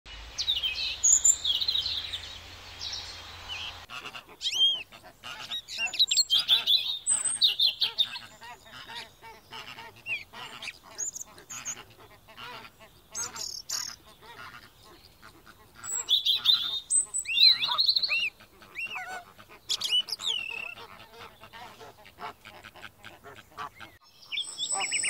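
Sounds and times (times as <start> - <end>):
steady hiss: 0.1 - 3.9
flamingos honking: 0.1 - 24.0
high-pitched bird chirping: 0.2 - 4.8, 15.9 - 19.1, 19.7 - 20.8, 24.1 - 25.0.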